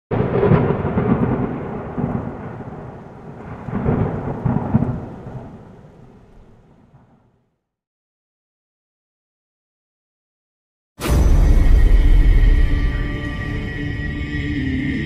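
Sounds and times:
thunder rumbling crash: 0.1s - 7.4s, 11.0s - 13.7s.

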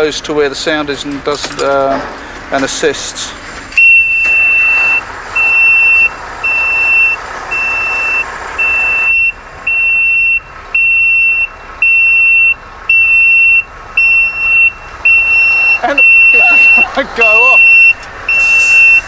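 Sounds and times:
high-pitched alarm beeps: 3.8s - 19.0s.

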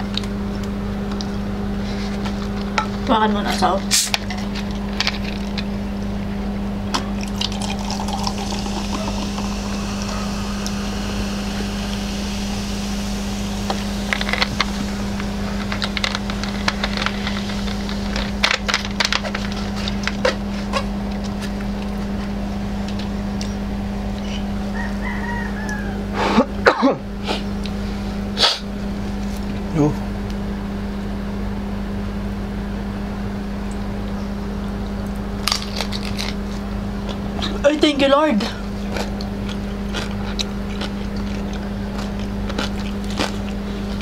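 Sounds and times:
steady hum: 0.0s - 44.0s
broth bubbling: 6.9s - 18.0s
eating sounds: 6.9s - 26.5s, 35.4s - 37.6s, 38.4s - 44.0s.

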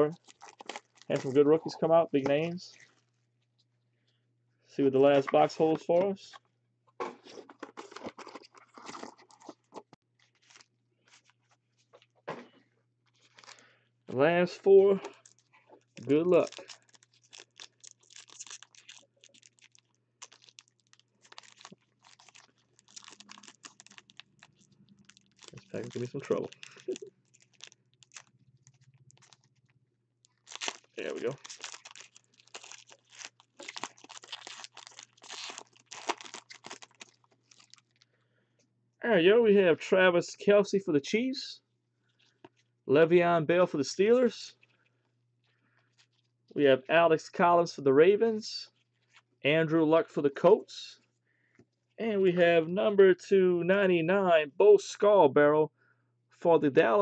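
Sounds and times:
foil wrapper crinkling and tearing: 0.1s - 1.4s, 10.2s - 11.6s, 13.2s - 13.6s, 15.0s - 38.0s.

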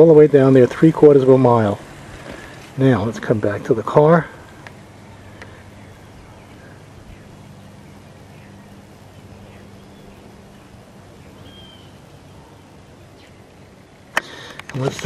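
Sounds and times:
background hiss: 0.0s - 15.0s
low steady hum: 0.0s - 15.0s
faint bird chirps: 5.0s - 13.8s.

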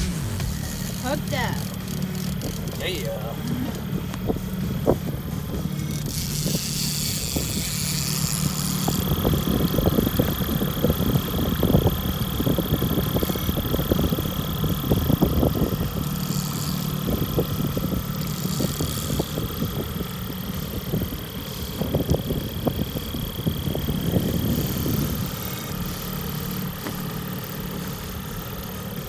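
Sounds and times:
boat engine idling: 0.0s - 29.0s.

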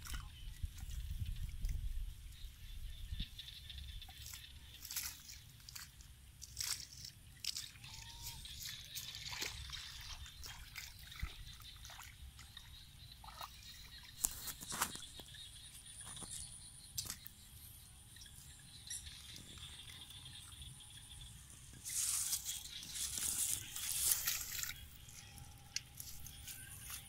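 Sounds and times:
water sloshing and dripping: 0.0s - 2.0s, 4.0s - 17.3s, 21.7s - 27.0s.

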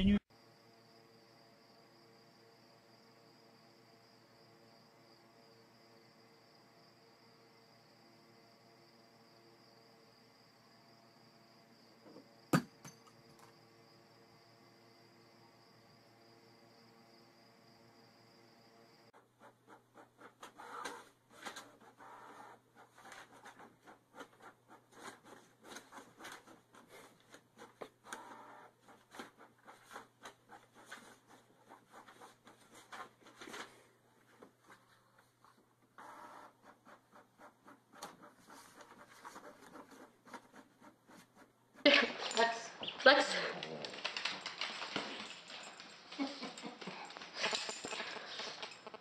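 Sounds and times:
paper rustling: 29.0s - 35.6s, 41.9s - 49.0s.

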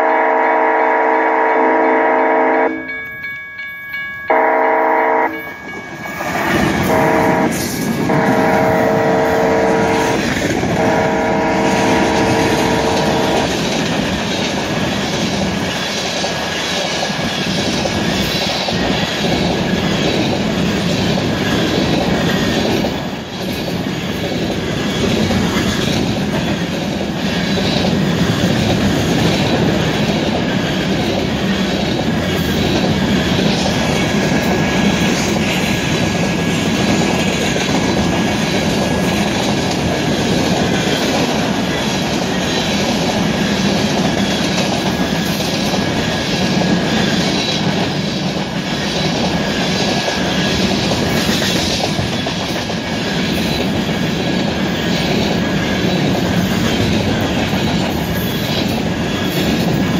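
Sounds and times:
locomotive horn blasts: 0.0s - 2.9s, 4.3s - 5.4s, 6.8s - 13.6s
train rumble and wheel clatter: 0.0s - 59.9s.

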